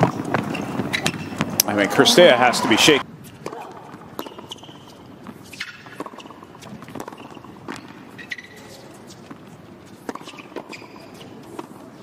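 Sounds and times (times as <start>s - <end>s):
tennis shoes squeaking on court: 0.0s - 1.9s, 2.5s - 12.0s
tennis racket hitting ball: 5.6s - 8.6s.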